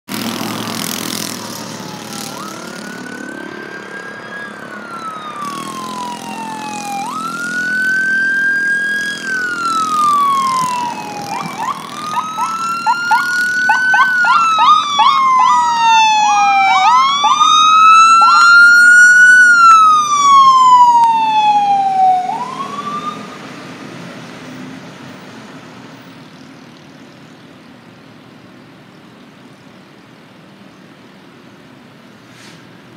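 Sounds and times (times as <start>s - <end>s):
traffic noise: 0.1s - 32.9s
emergency sirens wailing: 0.4s - 25.3s
siren yelping: 1.4s - 23.4s.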